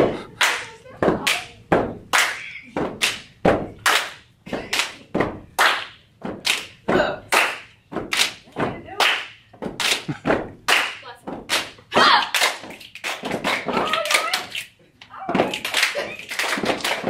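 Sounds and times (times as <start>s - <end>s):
rhythmic hand clapping: 0.0s - 17.0s
feet stomping: 0.9s - 14.1s.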